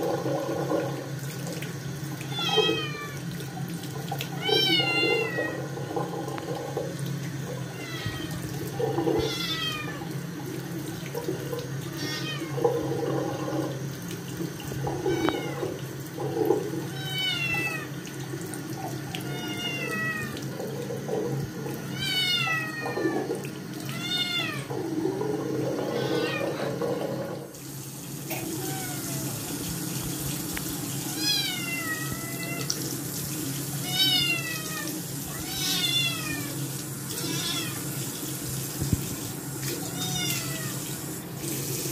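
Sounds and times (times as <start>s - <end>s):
tap running into sink: 12.6s - 16.7s, 37.1s - 41.9s
kitten meowing loudly: 37.2s - 37.8s.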